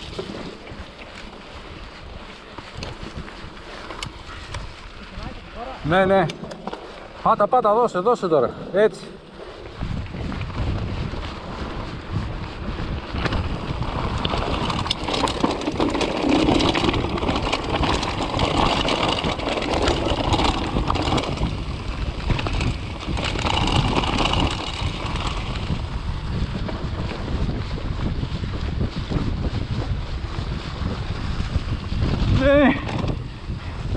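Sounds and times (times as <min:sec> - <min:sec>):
tyres rolling over stones: 0:00.0 - 0:01.9, 0:13.2 - 0:26.0
bike frame rattling: 0:00.0 - 0:33.9
wind buffeting microphone: 0:00.0 - 0:33.9.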